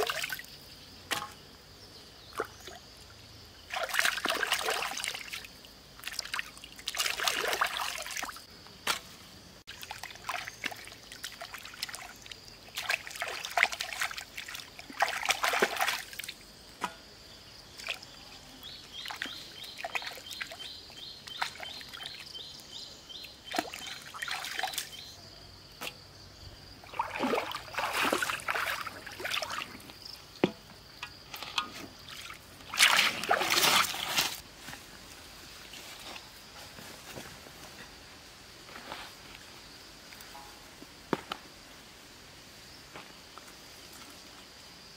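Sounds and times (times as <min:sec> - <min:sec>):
stream water splashing: 0:00.0 - 0:00.5, 0:03.6 - 0:09.1, 0:09.7 - 0:17.0, 0:17.7 - 0:22.5, 0:23.2 - 0:25.2, 0:26.8 - 0:30.2, 0:31.0 - 0:34.7.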